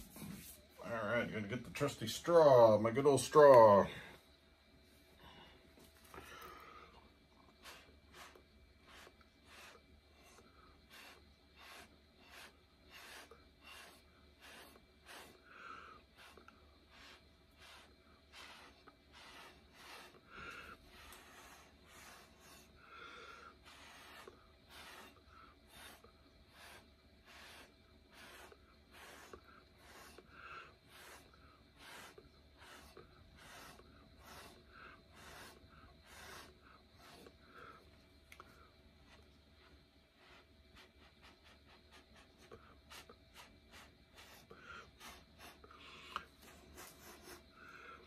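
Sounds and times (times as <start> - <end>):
breath puffs through a straw: 5.2 - 37.8.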